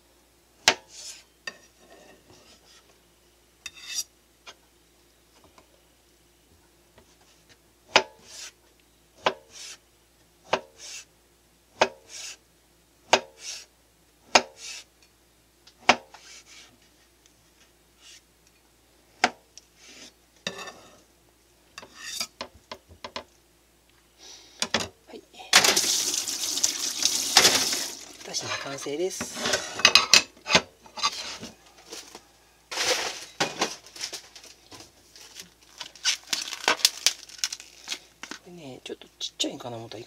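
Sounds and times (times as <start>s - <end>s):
knife scraping: 0.9s - 2.8s, 3.6s - 4.1s, 8.2s - 8.6s, 9.4s - 9.8s, 10.5s - 11.1s, 12.0s - 12.4s, 13.3s - 13.7s, 14.5s - 14.9s, 16.1s - 16.8s, 18.0s - 18.2s, 21.8s - 22.3s, 30.8s - 31.4s.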